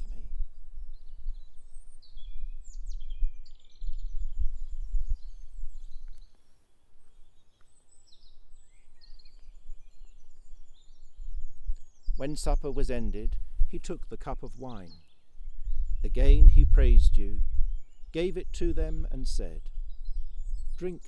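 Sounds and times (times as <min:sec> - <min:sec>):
songbirds chirping: 0:00.0 - 0:21.0.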